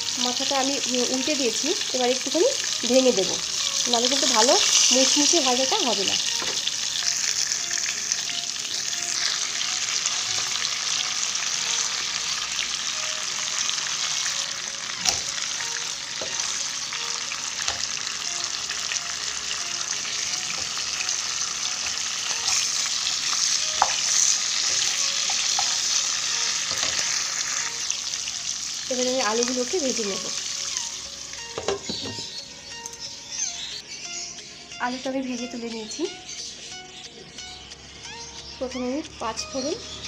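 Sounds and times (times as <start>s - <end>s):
fish sizzling in oil: 0.0s - 36.7s.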